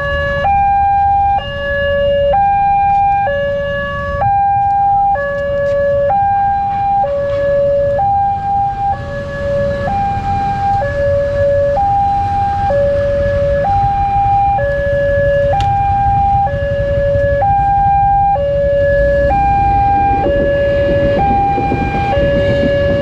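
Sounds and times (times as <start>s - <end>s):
two-tone level crossing alarm: 0.0s - 23.0s
motorcycle engines rumbling: 2.4s - 23.0s
electric train arriving: 18.9s - 23.0s.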